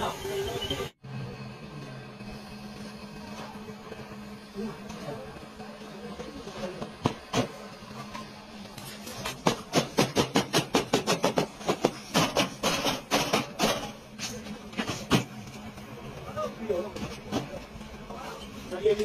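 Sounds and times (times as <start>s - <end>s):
hammer striking sheet metal: 9.4s - 13.9s.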